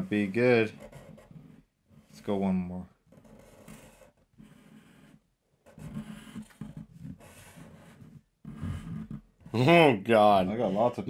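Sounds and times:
markers scratching on paper: 0.1 - 2.1, 3.1 - 9.7.

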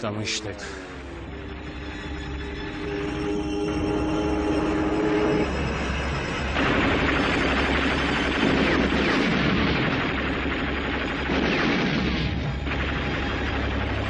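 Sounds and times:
anti-aircraft guns firing: 6.5 - 14.0.

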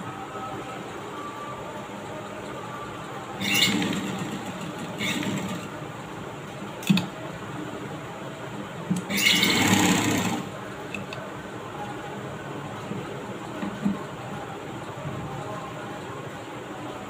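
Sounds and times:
sewing machine stitching: 3.4 - 5.7, 9.0 - 10.5.

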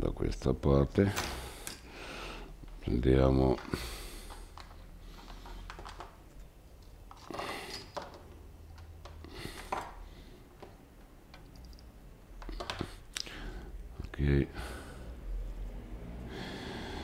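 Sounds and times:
low electrical hum: 0.0 - 17.0
small tools clicking and clattering: 6.8 - 9.9.

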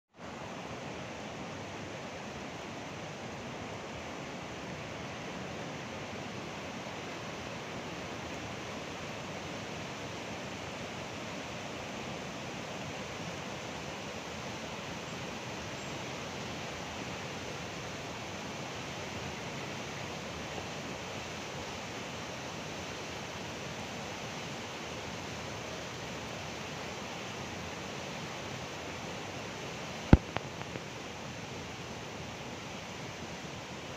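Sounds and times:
flood water rushing: 16.6 - 33.9.

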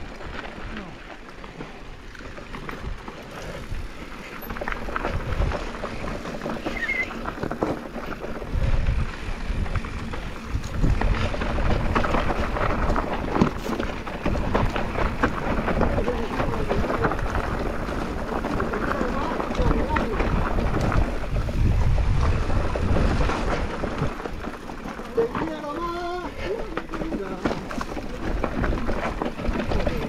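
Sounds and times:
bike frame rattling: 0.0 - 30.0
tyres crunching over stones: 0.0 - 30.0
wind on microphone: 8.4 - 24.5.

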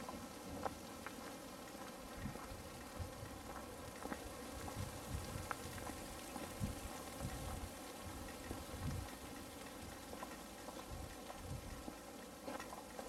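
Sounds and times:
wind buffeting microphone: 4.6 - 9.2.

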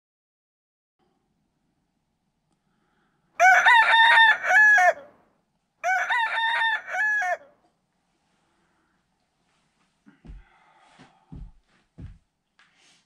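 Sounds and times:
rooster crowing: 3.4 - 5.2, 5.8 - 7.6.

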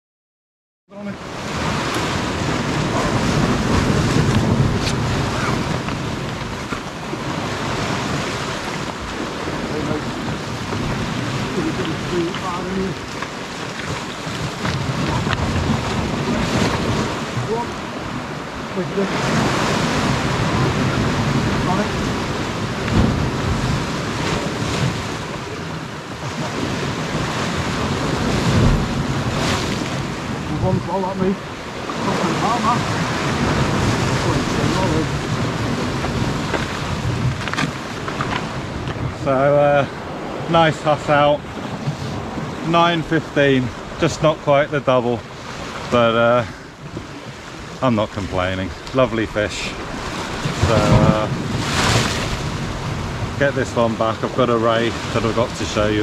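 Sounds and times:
waves on rocky shore: 0.9 - 56.0
wind buffeting microphone: 1.2 - 56.0.

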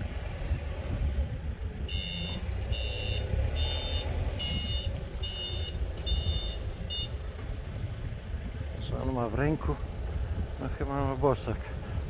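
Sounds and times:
low rumble: 0.0 - 12.0
vehicle reversing alarm beeping: 1.8 - 7.3.

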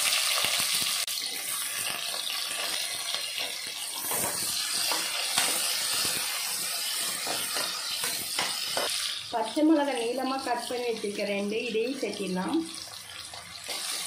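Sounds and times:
onions sizzling in hot oil: 0.0 - 14.0
metal spoon scraping a pot: 3.4 - 9.3, 12.8 - 14.0.

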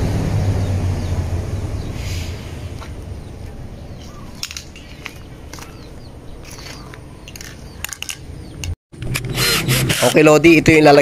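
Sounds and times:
high bird chirps: 0.5 - 8.8
crunching clicks: 6.4 - 9.4.

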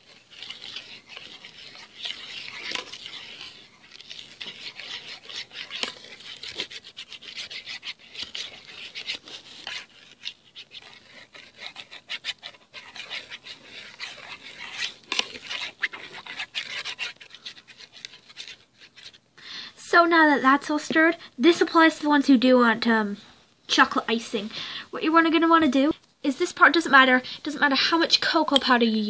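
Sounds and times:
spoon scraping metal tin: 0.0 - 19.2.

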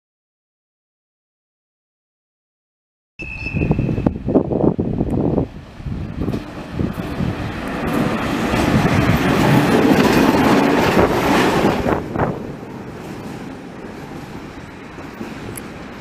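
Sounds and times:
wheels clattering on rails: 6.2 - 16.0.

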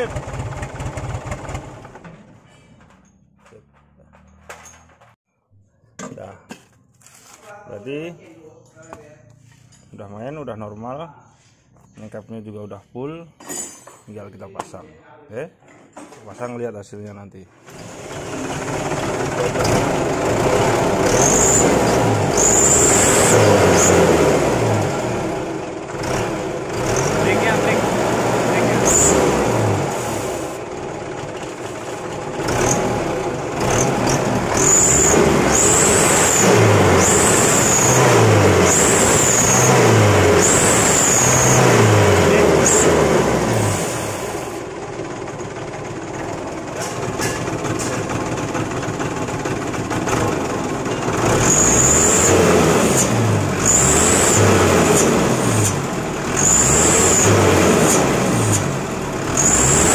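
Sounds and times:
diesel truck engine revving: 17.7 - 59.9.

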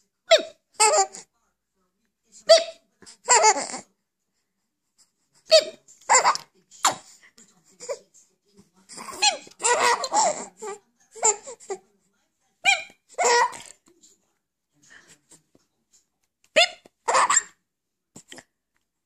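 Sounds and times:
baby laughing: 0.3 - 1.2, 3.2 - 3.8, 5.5 - 7.0, 8.9 - 11.8, 12.7 - 13.7, 16.6 - 17.6.

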